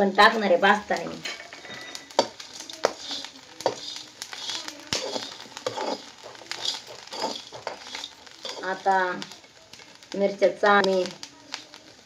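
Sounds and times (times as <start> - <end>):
metal spatula scraping a pan: 0.0 - 9.4
chillies sizzling in a pan: 0.0 - 12.0.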